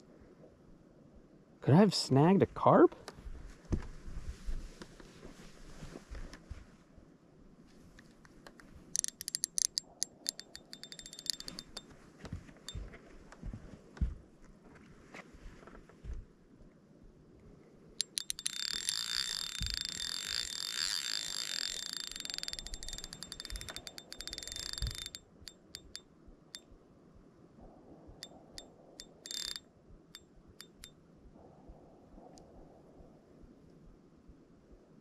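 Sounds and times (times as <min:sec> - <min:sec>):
fishing reel drag clicking: 0:08.9 - 0:11.8, 0:18.0 - 0:26.0, 0:28.6 - 0:29.6, 0:30.6 - 0:30.9.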